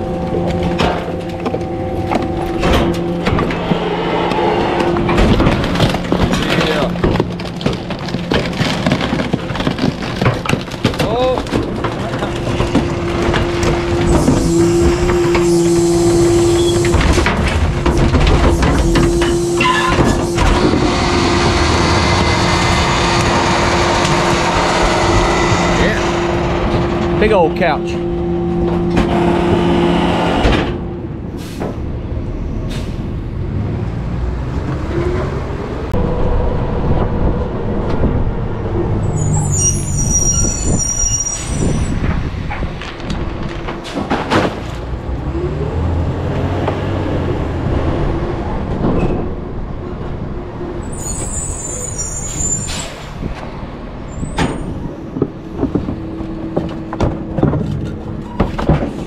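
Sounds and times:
garbage truck engine revving: 0:00.0 - 0:59.0
air brakes squealing: 0:14.1 - 0:17.0, 0:18.9 - 0:20.5, 0:32.4 - 0:33.2, 0:39.0 - 0:42.0, 0:50.8 - 0:53.3.

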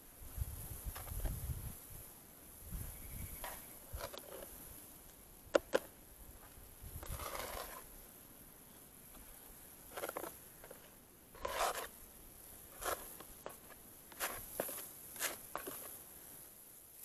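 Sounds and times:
skimmer scraping and swishing: 0:07.0 - 0:07.9, 0:09.9 - 0:11.9.

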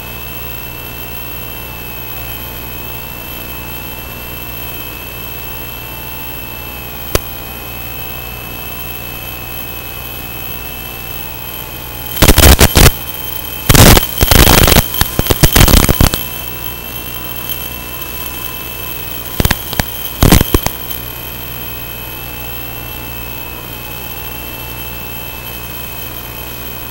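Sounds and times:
crackling bursts of static: 0:00.0 - 0:26.9
steady radio hiss: 0:00.0 - 0:26.9
click: 0:07.1 - 0:07.3, 0:19.4 - 0:21.0.

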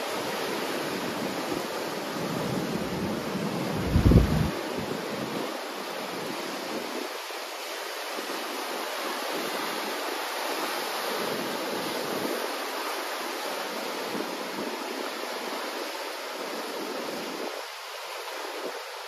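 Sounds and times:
waves washing over sand: 0:00.0 - 0:19.0.

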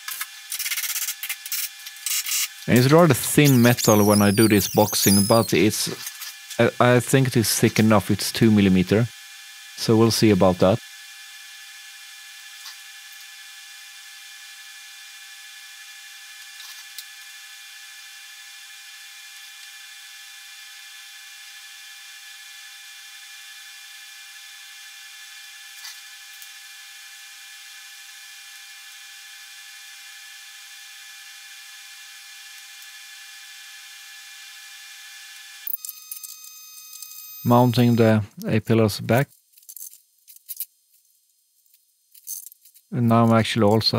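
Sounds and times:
welding arc hissing and whining: 0:00.0 - 0:20.8, 0:24.3 - 0:38.6.

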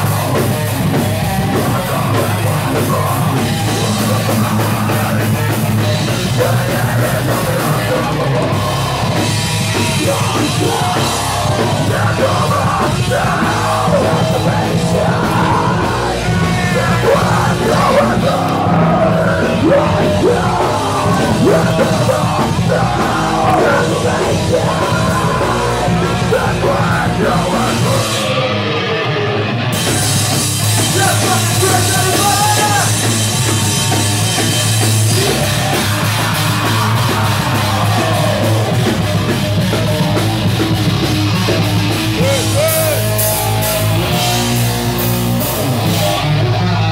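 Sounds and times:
heavy rock band playing: 0:00.0 - 0:46.9
vocalist yelling: 0:10.0 - 0:28.2, 0:30.9 - 0:33.1, 0:42.1 - 0:43.5.

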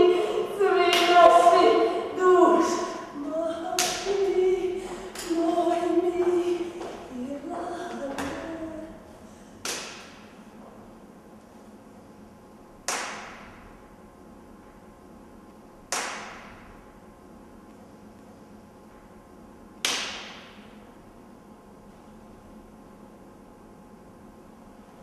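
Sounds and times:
sharp cracks: 0:09.6 - 0:10.3, 0:12.8 - 0:13.6, 0:15.9 - 0:16.7, 0:19.8 - 0:20.7.

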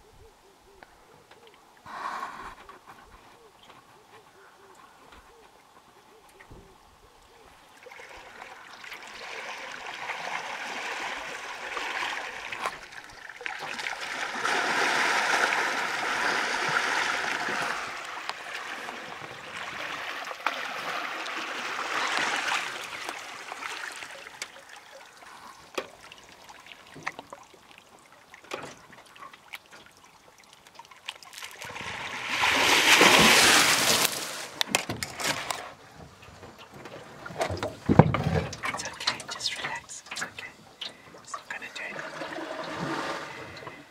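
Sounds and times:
elephant wading through water: 0:07.4 - 0:28.3, 0:28.9 - 0:34.6, 0:36.8 - 0:43.9.

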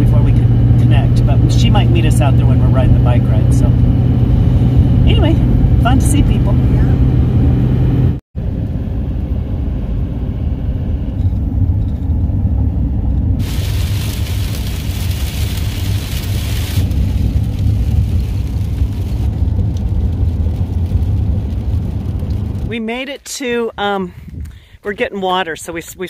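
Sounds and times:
road and engine rumble: 0:00.0 - 0:26.0
rain and wet road spray hiss: 0:13.4 - 0:22.7.

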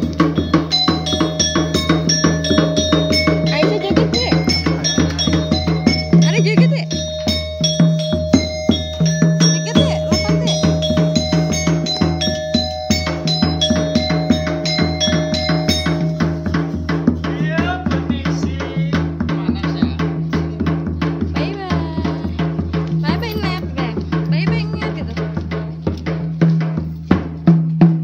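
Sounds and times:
ringing bell-like notes: 0:00.0 - 0:19.1
fast drum rhythm: 0:00.0 - 0:28.0.

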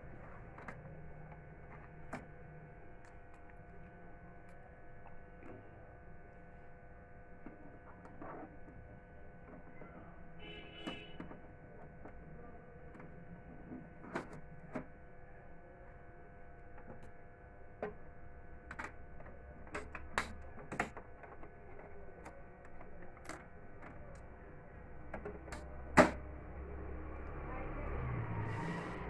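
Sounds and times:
faint steady hum: 0:00.0 - 0:29.0
plastic clicks and knocks: 0:18.7 - 0:24.0.

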